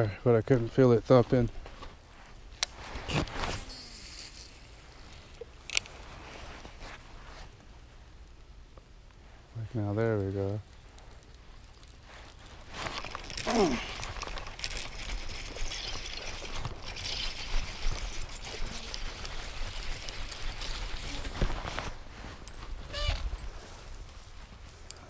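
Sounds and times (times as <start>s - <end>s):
grass and clothing rustling: 0.0s - 25.0s
short falling squeak: 22.9s - 23.3s.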